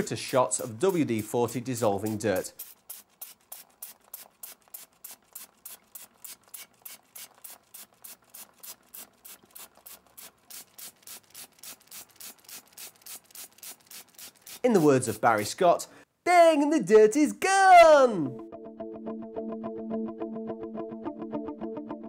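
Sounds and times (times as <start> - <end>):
brush scrubbing metal: 0.0 - 15.6.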